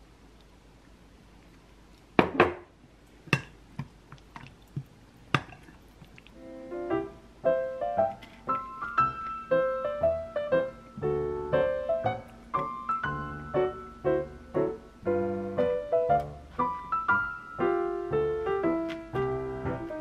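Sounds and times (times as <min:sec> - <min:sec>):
low piano bass notes: 0:06.3 - 0:20.0
piano melody: 0:06.4 - 0:20.0.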